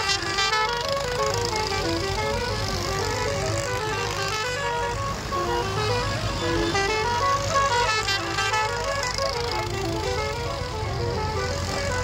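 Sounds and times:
tractor engines running: 0:00.0 - 0:12.0.

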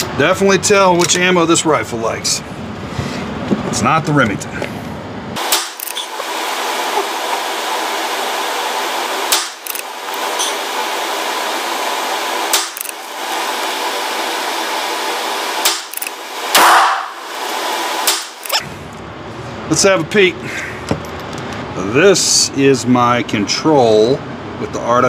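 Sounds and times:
rifle shots: 0:16.5 - 0:17.2.

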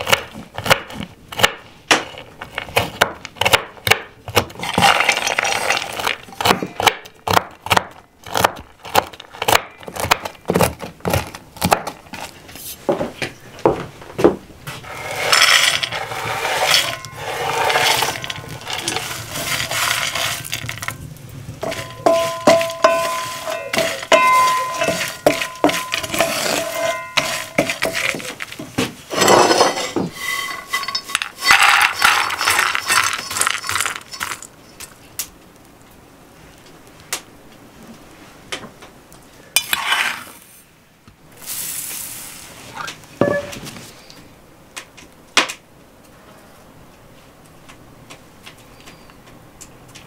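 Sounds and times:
walnuts rattling in a pan: 0:04.6 - 0:06.3, 0:14.8 - 0:21.0, 0:21.6 - 0:34.9
kitchenware clinking: 0:21.6 - 0:34.5, 0:43.2 - 0:43.6.

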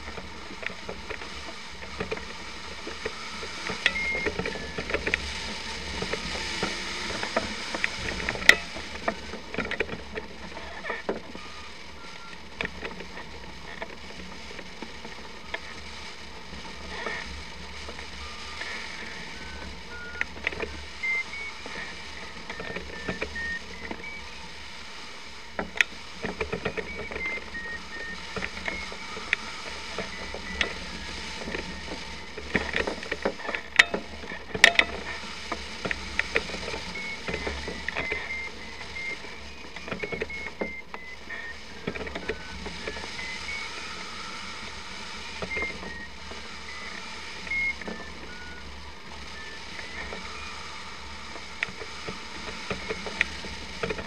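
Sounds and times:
variometer beeping: 0:00.0 - 0:24.7, 0:25.5 - 0:54.0.

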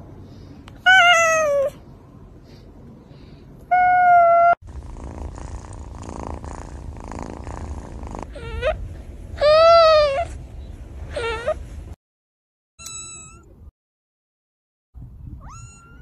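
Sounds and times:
cat meowing: 0:00.8 - 0:01.8, 0:15.4 - 0:16.0
cat purring: 0:04.7 - 0:08.4.

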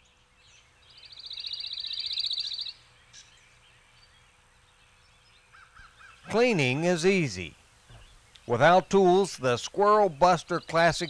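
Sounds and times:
faint bird chirps: 0:00.0 - 0:06.3, 0:07.8 - 0:08.6
songbird trill: 0:00.0 - 0:11.0.

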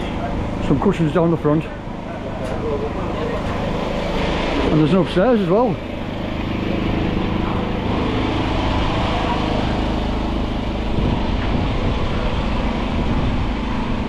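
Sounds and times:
boat engine droning: 0:00.0 - 0:14.0.

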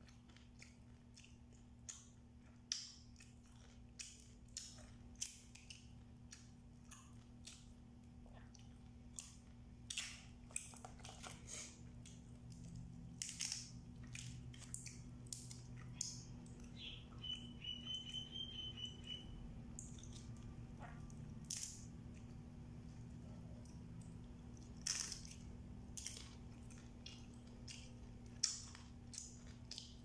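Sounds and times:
chewing: 0:00.0 - 0:16.8, 0:19.7 - 0:30.0
low hum: 0:11.2 - 0:29.8
crab shells cracking: 0:12.0 - 0:16.6, 0:23.8 - 0:30.0
high chirping trill: 0:16.7 - 0:19.5.

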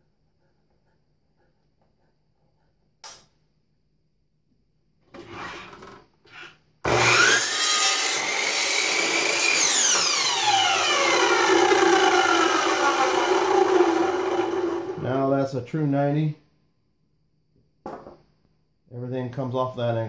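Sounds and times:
miter saw cutting wood: 0:06.8 - 0:15.0
saw blade spinning down: 0:06.9 - 0:15.1.

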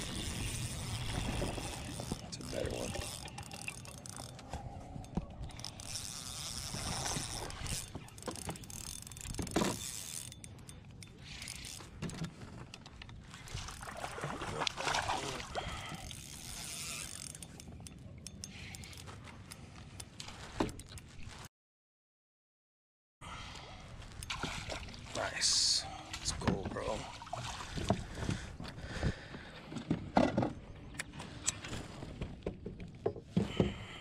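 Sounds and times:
fishing reel ratcheting clicks: 0:00.0 - 0:13.8, 0:15.8 - 0:21.0.

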